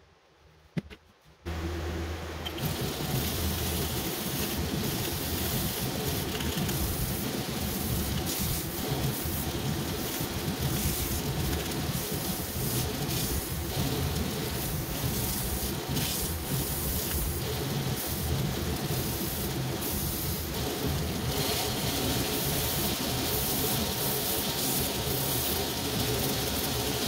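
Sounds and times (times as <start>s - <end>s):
grinder motor hum: 1.5s - 12.2s.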